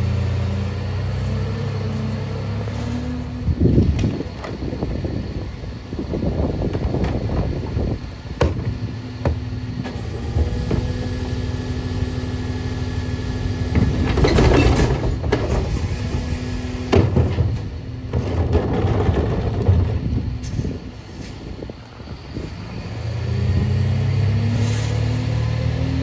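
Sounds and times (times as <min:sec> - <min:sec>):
cart knocking down: 0:13.7 - 0:16.2, 0:16.9 - 0:20.7.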